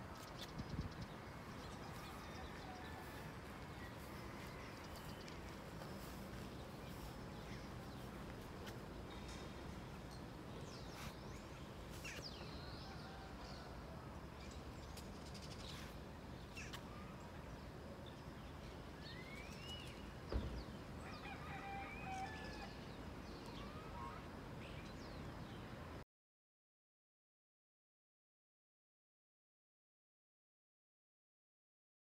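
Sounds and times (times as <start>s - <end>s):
birds chirping and whistling: 19.1s - 20.5s.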